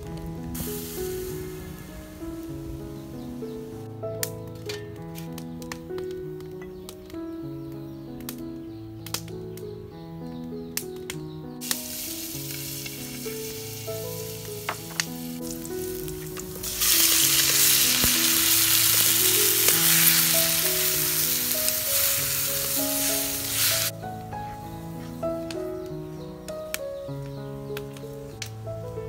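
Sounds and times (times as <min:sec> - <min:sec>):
background music: 0:00.0 - 0:29.0
food sizzling in a hot wok: 0:00.6 - 0:03.5, 0:11.6 - 0:23.9.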